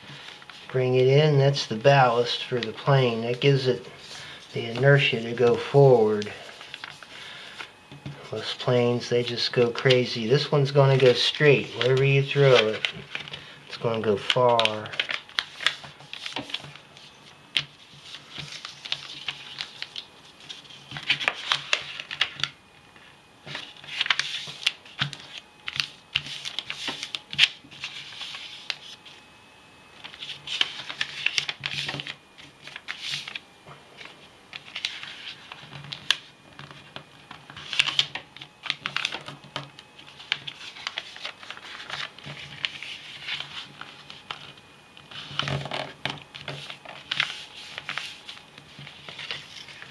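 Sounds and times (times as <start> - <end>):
paper rustling and crinkling: 0.0 - 29.2, 29.9 - 49.9.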